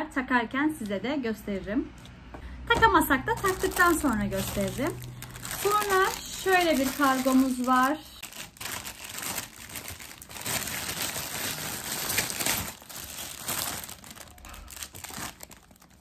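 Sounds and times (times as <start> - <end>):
plastic bag crinkling: 3.3 - 16.0.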